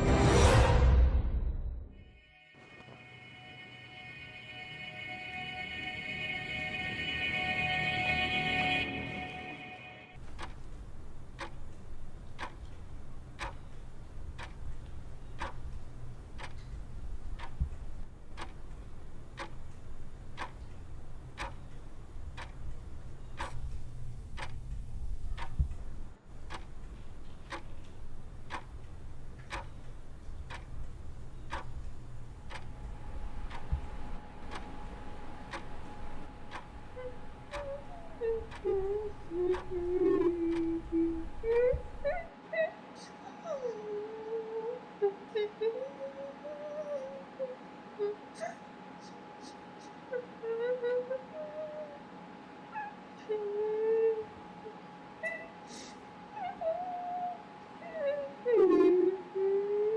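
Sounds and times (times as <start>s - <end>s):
faint wavering wail: 2.2s - 10.2s, 35.4s - 48.6s, 52.7s - 59.9s
low steady hum: 2.7s - 59.9s
thin steady tone: 3.0s - 42.3s
clock ticking: 10.2s - 42.3s.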